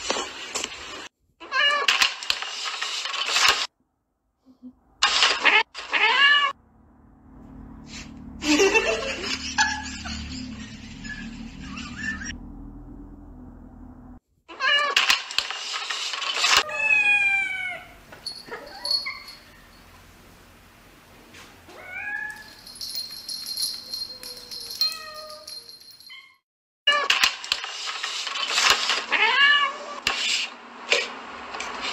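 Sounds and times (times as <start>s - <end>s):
cats meowing: 16.6s - 19.3s, 21.7s - 22.6s.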